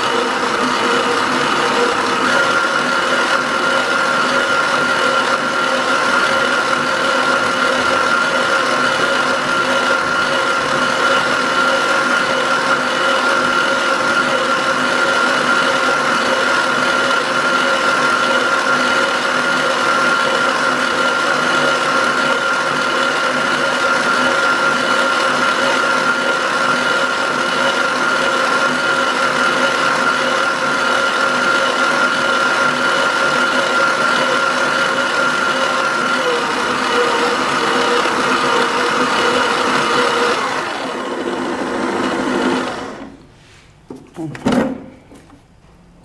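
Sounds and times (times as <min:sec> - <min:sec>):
stand mixer motor running: 0:00.0 - 0:43.2.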